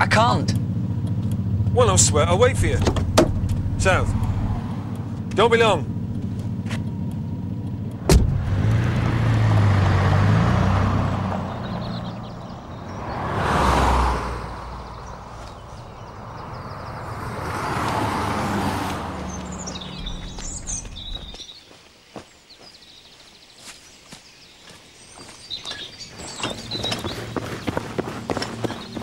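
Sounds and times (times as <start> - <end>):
small birds chirping: 0.0 - 8.0, 8.6 - 29.0
car engine revving: 0.0 - 21.4
vehicles passing by: 0.0 - 21.6, 25.0 - 29.0
car door slamming: 2.6 - 4.1, 8.0 - 8.7.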